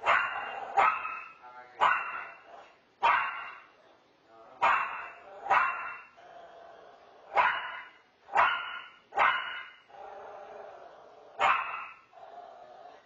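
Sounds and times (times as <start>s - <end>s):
dog barking: 0.0s - 3.7s, 4.6s - 6.2s, 7.3s - 9.8s, 11.4s - 12.1s.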